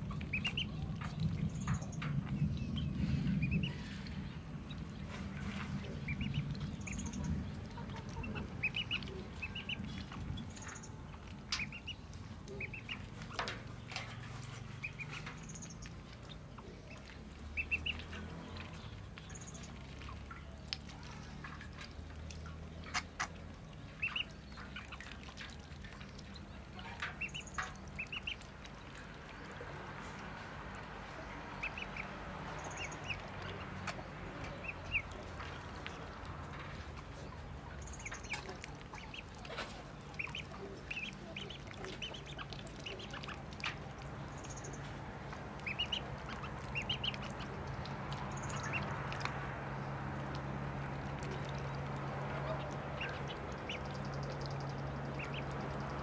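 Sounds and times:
ducklings peeping: 0.0s - 56.0s
small splashes in metal basin: 0.0s - 56.0s.

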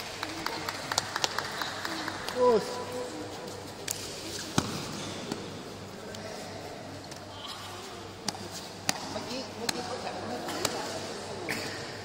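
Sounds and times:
faint murmur of large hall: 0.0s - 12.0s
sharp slaps and knocks: 3.8s - 5.5s, 8.2s - 11.0s.

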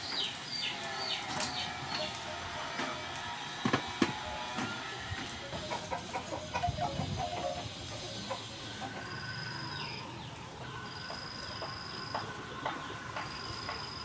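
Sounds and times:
chickens clucking: 0.0s - 14.0s
outdoor background noise: 0.0s - 14.0s
high steady tone: 5.4s - 9.3s.

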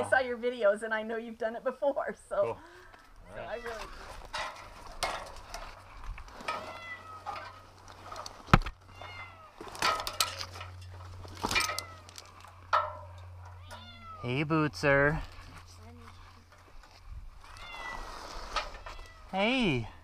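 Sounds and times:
cat meowing: 6.6s - 7.4s, 8.8s - 9.6s, 13.6s - 14.3s, 17.5s - 18.1s, 18.8s - 19.3s.

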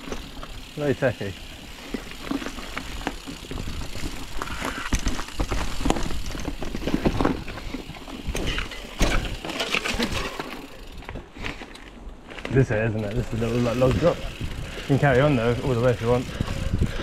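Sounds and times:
wheels knocking and rattling: 0.0s - 11.7s
bike tyre noise on dirt: 0.0s - 17.0s.

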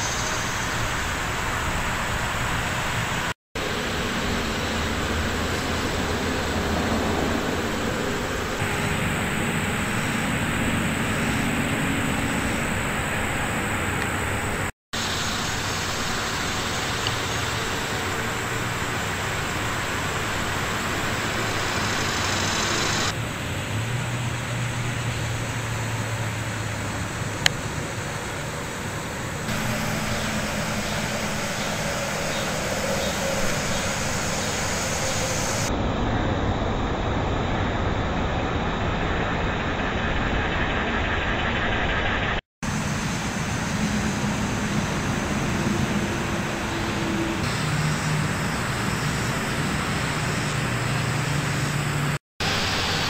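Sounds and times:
dense hiss: 0.0s - 26.4s, 27.1s - 35.7s, 42.1s - 53.0s
low mechanical hum: 0.0s - 53.0s
low rumble: 29.5s - 42.4s.

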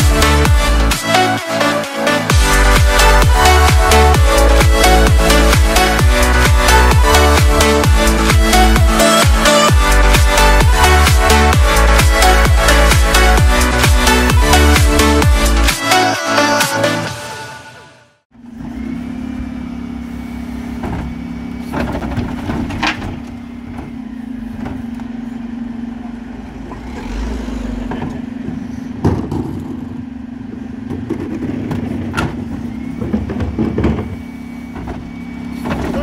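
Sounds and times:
refuse truck humming: 0.0s - 36.0s
metal clanks of bins: 20.8s - 24.0s, 27.9s - 30.0s, 30.8s - 36.0s.

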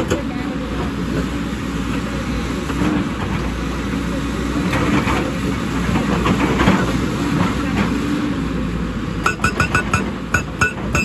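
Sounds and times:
excavator diesel engine running: 0.0s - 11.0s
hydraulic rock breaker: 9.2s - 11.0s.

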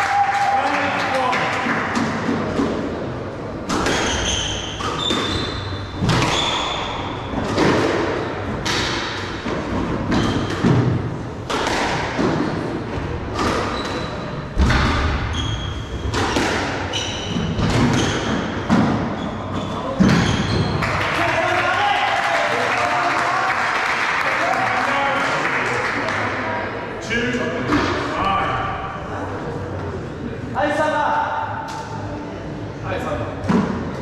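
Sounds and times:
squash ball hitting rackets: 3.6s - 19.2s
shoes squeaking on wooden floor: 3.8s - 7.0s, 15.3s - 20.8s.

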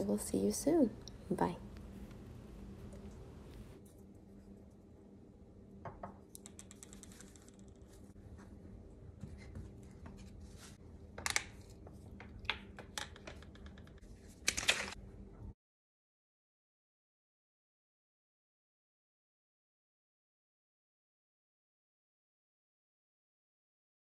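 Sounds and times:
faint steady hum: 0.0s - 15.6s.

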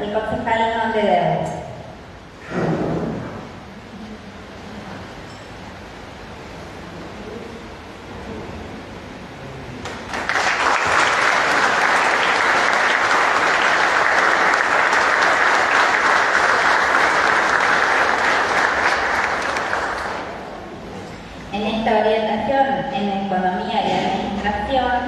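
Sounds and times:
audience applauding: 9.8s - 20.6s.

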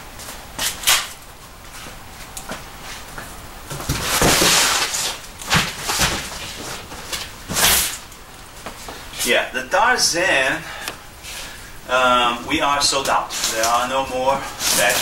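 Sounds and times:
cardboard box rustling and scraping: 3.8s - 8.0s.

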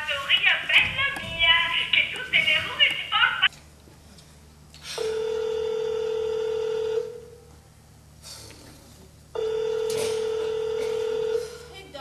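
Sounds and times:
electronic telephone ring: 5.0s - 7.2s, 9.4s - 11.4s.

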